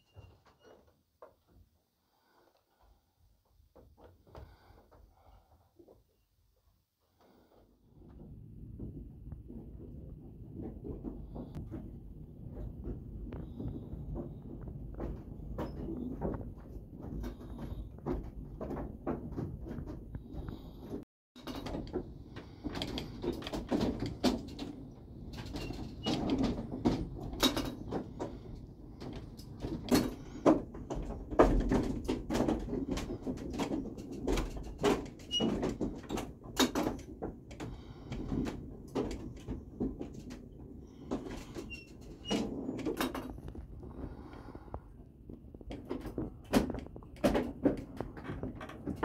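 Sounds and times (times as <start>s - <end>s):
faint squeak: 0.0s - 0.9s
wooden gears creaking and knocking: 7.2s - 49.0s.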